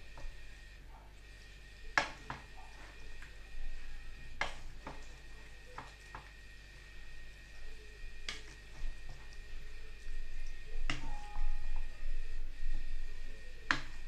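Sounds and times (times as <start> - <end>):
spoon scraping wet food: 1.4 - 11.0.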